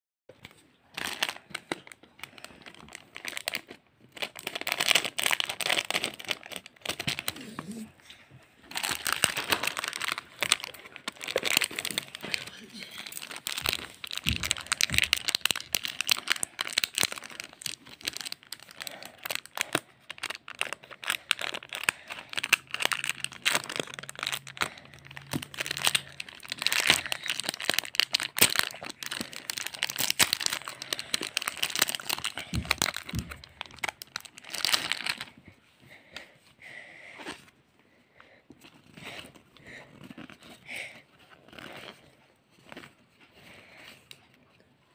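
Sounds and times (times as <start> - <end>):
foil wrappers crinkling and tearing: 0.4 - 7.8, 8.6 - 35.4.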